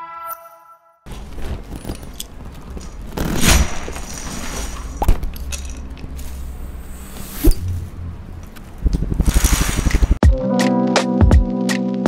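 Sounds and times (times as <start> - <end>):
plastic bricks clattering on a table: 1.6 - 6.2.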